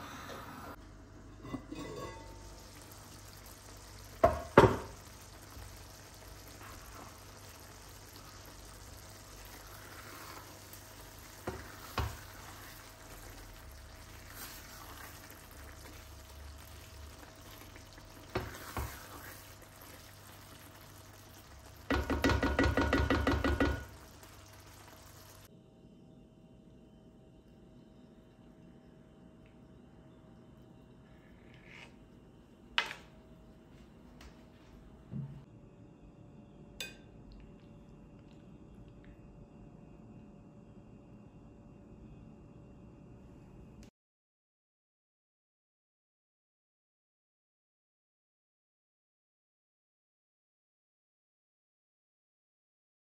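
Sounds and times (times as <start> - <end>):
sauce simmering with soft sizzle: 0.7 - 25.5
spatula stirring in pan: 1.3 - 25.5.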